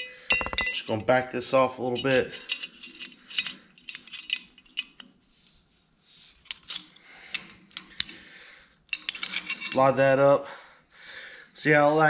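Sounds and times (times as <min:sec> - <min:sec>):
metal tapping on metal: 0:00.0 - 0:00.9
wrench clicking and clinking: 0:00.0 - 0:01.0, 0:01.9 - 0:05.1, 0:06.4 - 0:08.2, 0:08.9 - 0:09.8.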